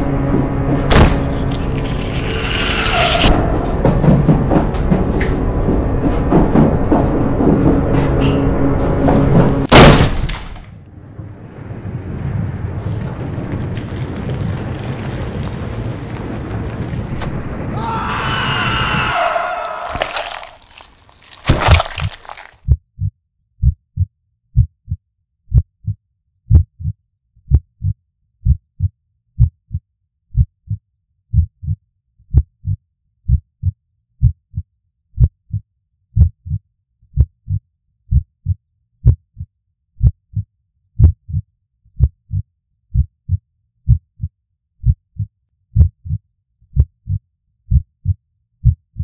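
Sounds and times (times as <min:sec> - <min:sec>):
heartbeat double thumps: 0:22.7 - 0:34.6, 0:35.2 - 0:35.6, 0:36.2 - 0:36.6, 0:37.2 - 0:40.4, 0:41.0 - 0:41.4, 0:42.0 - 0:49.0.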